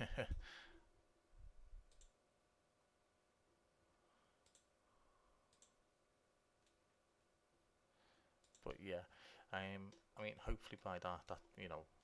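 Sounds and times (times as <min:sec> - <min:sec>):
faint steady hum: 0:00.0 - 0:12.0
computer mouse clicks: 0:01.8 - 0:02.2, 0:04.4 - 0:04.7, 0:05.5 - 0:05.8, 0:08.4 - 0:08.8.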